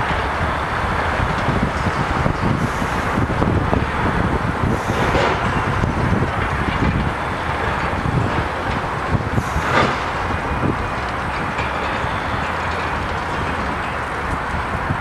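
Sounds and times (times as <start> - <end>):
distant traffic: 0.0 - 15.0
heavy demolition machinery: 0.0 - 15.0
wind buffeting microphone: 0.0 - 15.0
hissy swells: 1.7 - 14.1.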